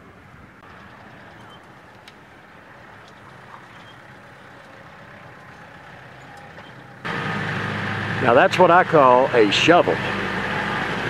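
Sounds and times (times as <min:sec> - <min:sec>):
tractor engine drone: 0:00.0 - 0:11.0.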